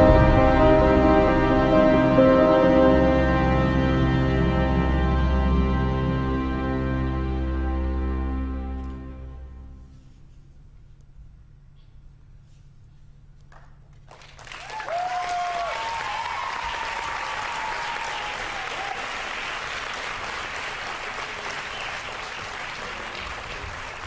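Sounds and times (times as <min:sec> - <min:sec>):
audience applause: 0:14.1 - 0:24.0
cheers and whoops: 0:14.6 - 0:19.3.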